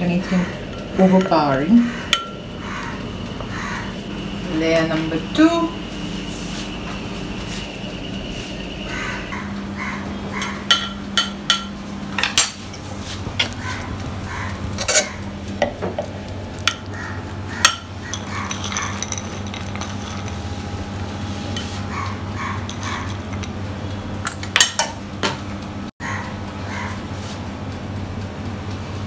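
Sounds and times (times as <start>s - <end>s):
utensils clinking against dishes: 0.0s - 3.6s, 10.3s - 16.0s, 16.6s - 20.6s, 21.4s - 23.6s, 24.2s - 25.4s
steady low hum: 0.0s - 29.0s.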